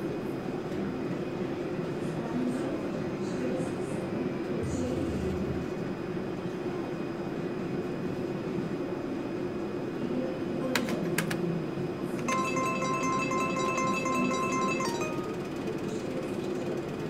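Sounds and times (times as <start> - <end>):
casino hall din: 12.2 - 15.9.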